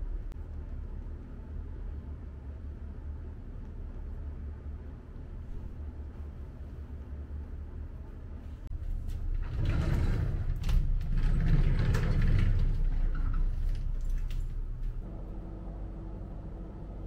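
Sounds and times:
sliding wardrobe door rolling: 8.7s - 15.1s.

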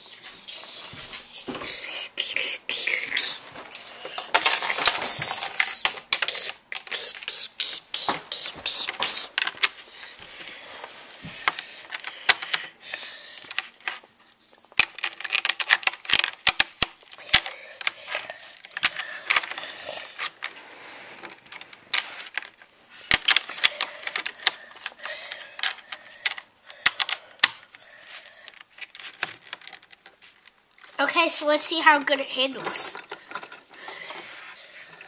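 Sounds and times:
plastic bricks clicking: 4.0s - 7.4s, 11.4s - 12.7s, 14.7s - 20.6s, 21.2s - 27.8s.

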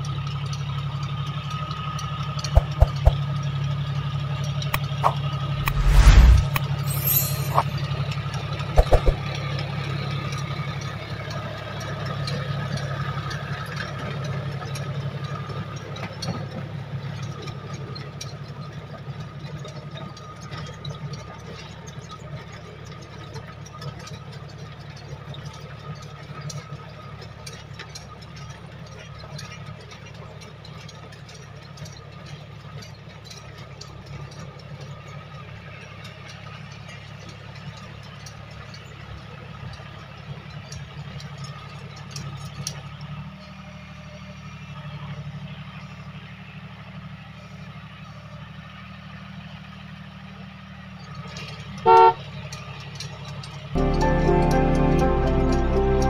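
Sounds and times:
tractor diesel engine running: 0.0s - 56.0s
sharp clicks: 2.6s - 3.2s, 4.8s - 7.7s, 8.8s - 9.2s.

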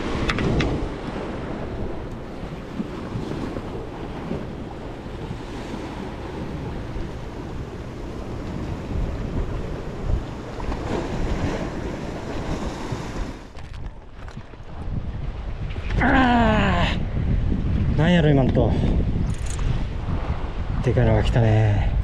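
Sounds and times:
surf washing against rocks: 0.0s - 15.0s
wind buffeting microphone: 0.0s - 22.0s.

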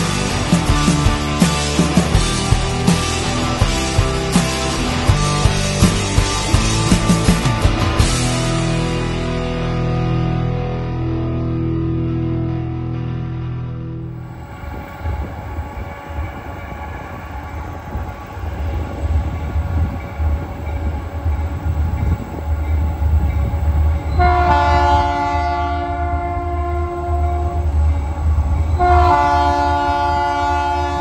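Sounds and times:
locomotive air horn blasts: 24.2s - 27.7s, 28.8s - 31.0s.

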